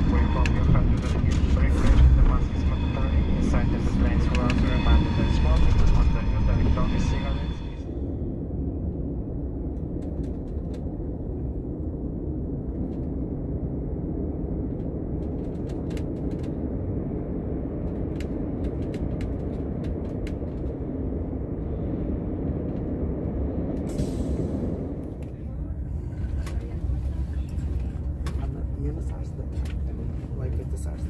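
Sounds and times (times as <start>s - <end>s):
high-speed train rumbling: 0.0s - 31.0s
faint clicks and ticks: 14.6s - 16.7s, 17.7s - 20.8s.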